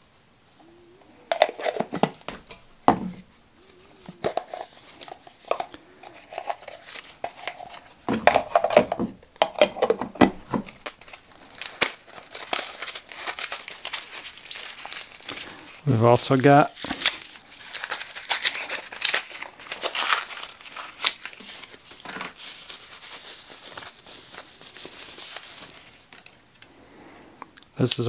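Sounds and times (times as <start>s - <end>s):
rustle: 0.0s - 8.0s, 10.7s - 26.3s
plastic cups and lids clacking: 1.3s - 3.2s, 4.0s - 11.1s.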